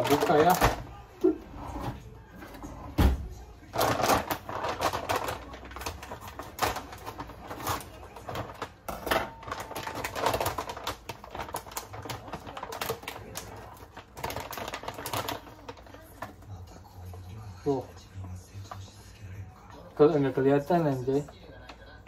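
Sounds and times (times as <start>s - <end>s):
plastic bag crinkling: 0.0s - 1.8s, 3.3s - 22.0s.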